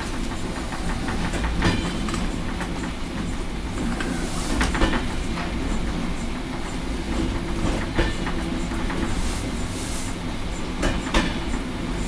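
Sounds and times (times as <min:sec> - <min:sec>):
low train rumble: 0:00.0 - 0:12.0.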